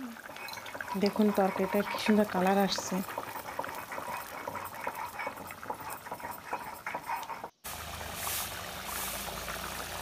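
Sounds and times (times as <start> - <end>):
curry bubbling in a pan: 0.0 - 10.0
steady hiss: 7.7 - 9.8.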